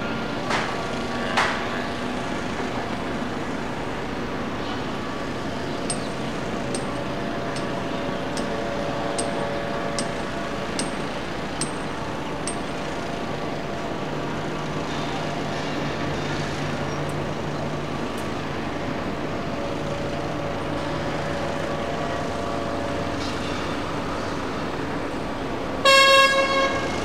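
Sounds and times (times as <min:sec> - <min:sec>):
city noise: 0:00.0 - 0:27.0
sharp metallic clinks: 0:05.8 - 0:13.1.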